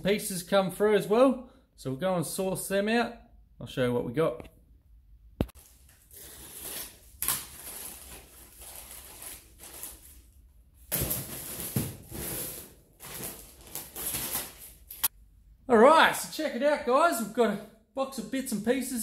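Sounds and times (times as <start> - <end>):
plastic satchel crinkling and rustling: 5.6 - 15.1.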